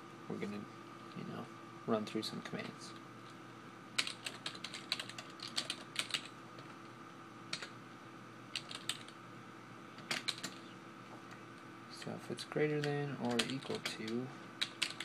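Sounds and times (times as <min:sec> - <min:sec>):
keyboard typing: 0:04.0 - 0:06.7, 0:07.5 - 0:07.7, 0:08.5 - 0:09.2, 0:10.0 - 0:10.7, 0:13.3 - 0:15.0.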